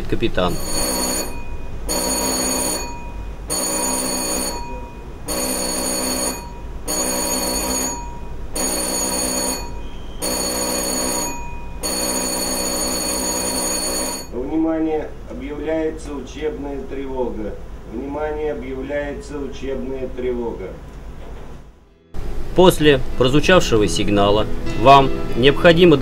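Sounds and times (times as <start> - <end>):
alarm bell ringing: 0.5 - 14.4.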